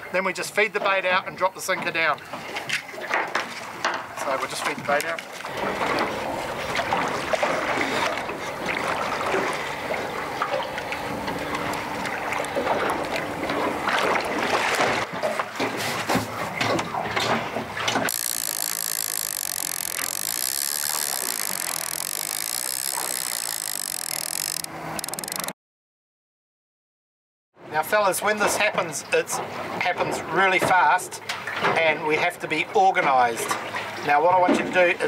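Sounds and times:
water splashing against boat hull: 0.8 - 25.5.

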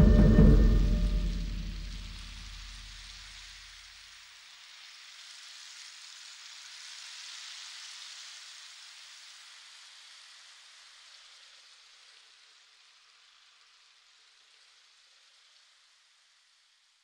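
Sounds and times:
background music: 0.0 - 2.5
rain-like hiss: 0.0 - 17.0.

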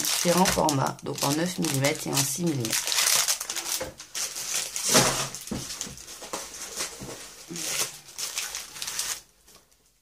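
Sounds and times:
plastic packaging crinkling: 0.0 - 9.8.

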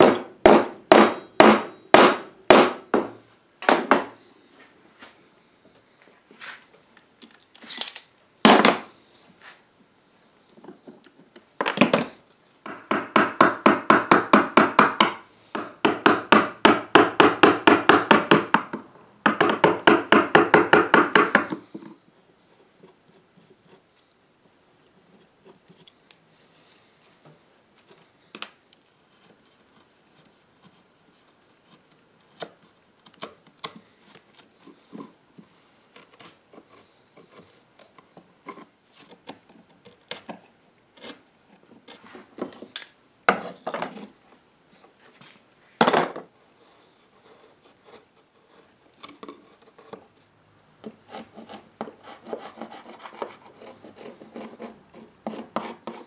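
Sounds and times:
chisel paring wood: 0.0 - 4.1, 12.7 - 21.9.

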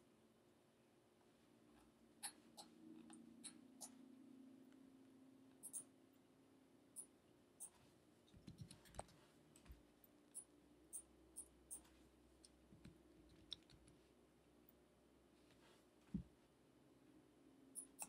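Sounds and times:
mouse and keyboard clicks: 8.4 - 9.2, 12.8 - 14.0.

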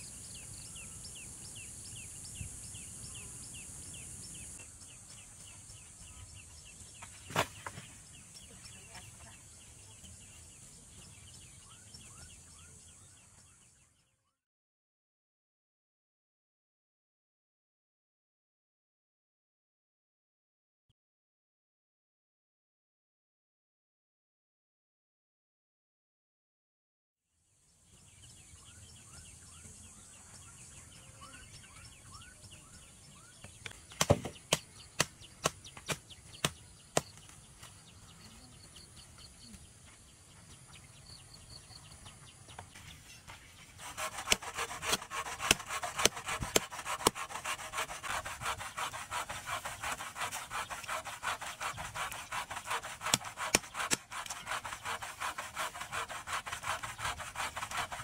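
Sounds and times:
faint bird chirps: 0.0 - 14.4, 27.6 - 43.7
sharp knocks: 34.0 - 37.1
scratchy rubbing of reed stalks: 42.7 - 58.0.

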